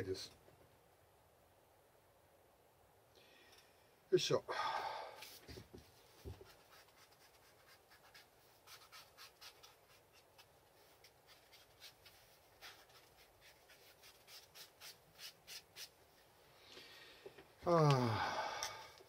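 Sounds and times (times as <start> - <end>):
hand tools scratching leather: 6.2 - 16.0.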